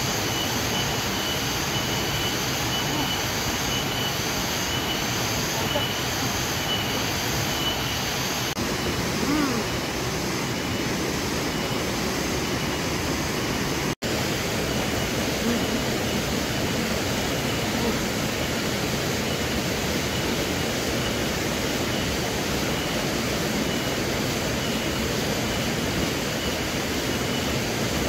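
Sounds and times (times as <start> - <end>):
faint high tone: 1.8 - 3.9, 8.8 - 9.8.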